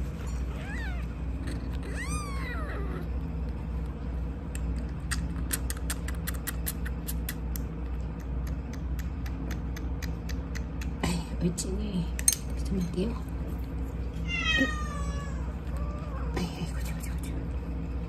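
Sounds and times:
steady low hum: 0:00.0 - 0:18.0
kitten mewing: 0:00.6 - 0:03.2
kitten sucking and smacking: 0:03.4 - 0:11.0.

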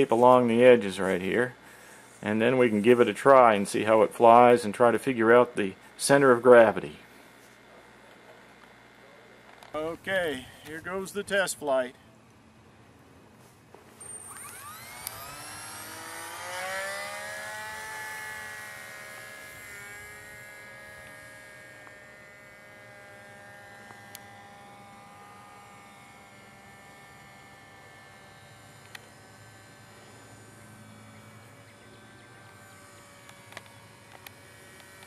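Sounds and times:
model plane motor whining: 0:13.9 - 0:35.0.

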